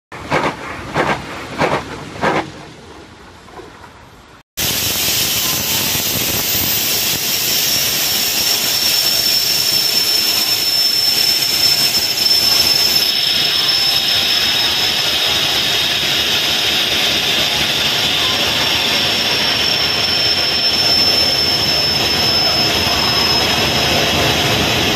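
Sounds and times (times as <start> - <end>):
diesel locomotive engine running: 4.6 - 24.9.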